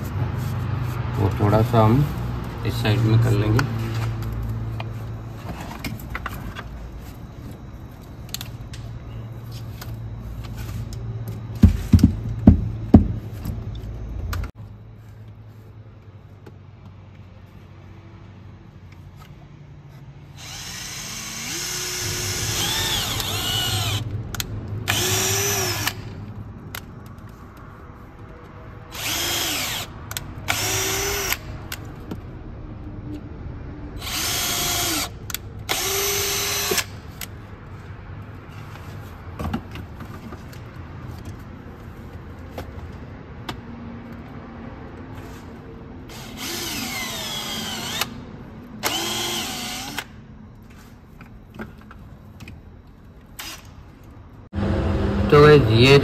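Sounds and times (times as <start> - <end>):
cordless drill whining: 20.3 - 24.0, 24.9 - 26.1, 28.9 - 29.9, 30.5 - 31.4, 34.0 - 35.1, 35.7 - 36.9, 46.1 - 48.2, 48.8 - 50.1.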